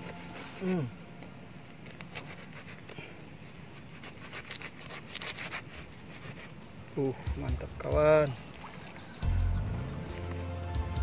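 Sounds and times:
fruit splitting clicks and scrapes: 3.7 - 6.6
knife cutting fruit rind: 3.7 - 6.7.

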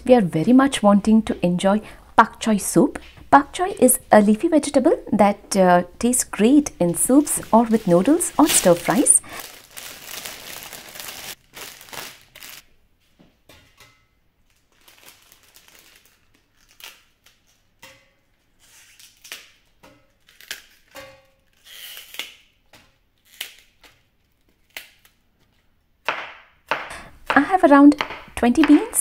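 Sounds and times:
plastic bag crinkling: 6.9 - 12.6, 14.5 - 17.6.

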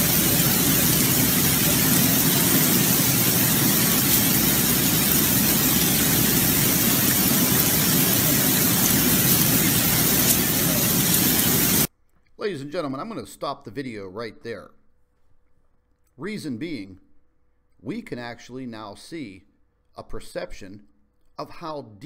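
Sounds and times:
heavy rain and rushing floodwater: 0.0 - 11.9.

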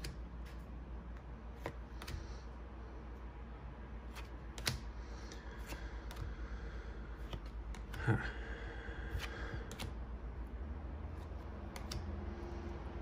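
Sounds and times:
cards clicking and rustling: 0.0 - 2.5, 4.1 - 6.4, 7.1 - 8.1, 9.1 - 10.0, 11.1 - 12.5
steady low hum: 0.0 - 13.0.

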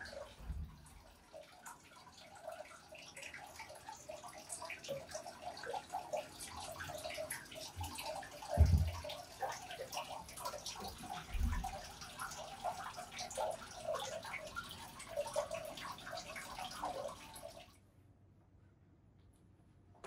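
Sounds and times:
water pouring into a bath: 0.0 - 17.8
low thump: 8.6 - 9.0.

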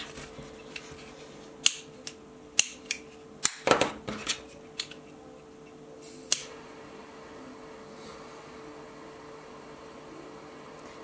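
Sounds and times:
lighter hiss: 6.0 - 6.7.

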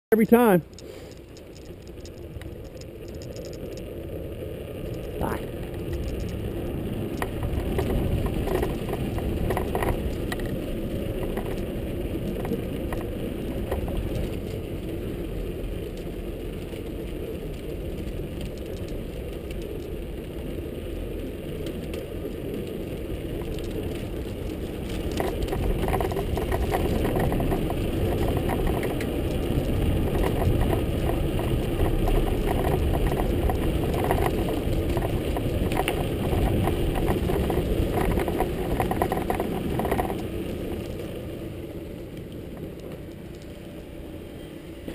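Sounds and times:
bicycle tyres rumbling over wood: 0.8 - 44.0
rattling and clicks over planks: 24.8 - 29.1, 30.0 - 40.3.

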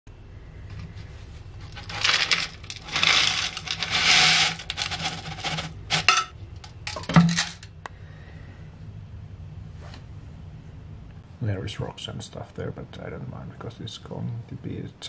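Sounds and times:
lead scraps pouring into tin can: 1.7 - 6.2.

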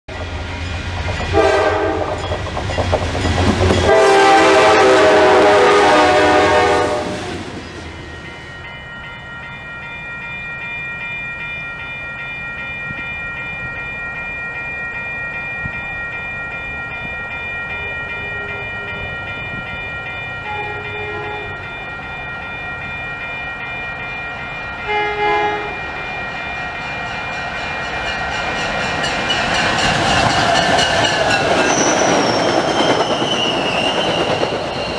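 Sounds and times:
crossing bell ringing: 0.1 - 34.9
train approaching: 0.1 - 34.9
train horn blowing: 1.3 - 2.3, 3.8 - 7.5, 20.4 - 21.6, 24.8 - 25.8
distant train horn: 1.3 - 2.4, 3.8 - 7.6, 20.4 - 21.6, 24.8 - 26.0.

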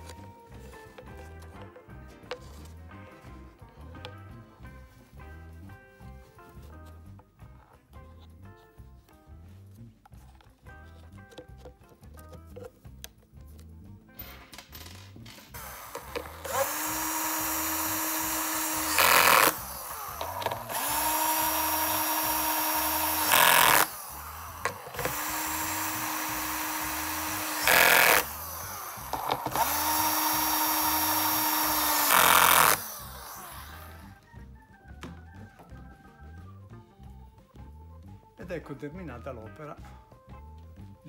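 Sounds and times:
drill-driver motor whining: 15.6 - 34.2.

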